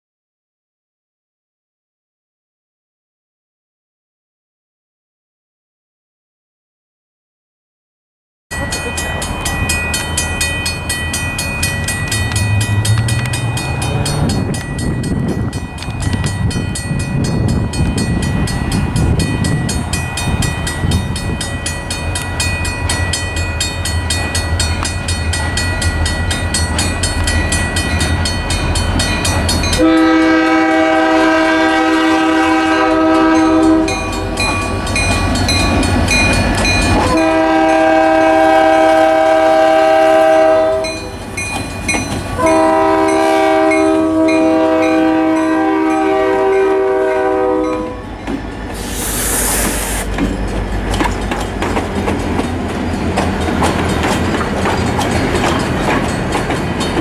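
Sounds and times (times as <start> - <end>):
locomotive bell ringing: 8.5 - 48.8, 50.0 - 57.0
train air horn blasts: 29.8 - 34.4, 37.0 - 41.1, 42.4 - 48.1, 48.7 - 50.1
locomotive engine rumble: 46.0 - 57.0.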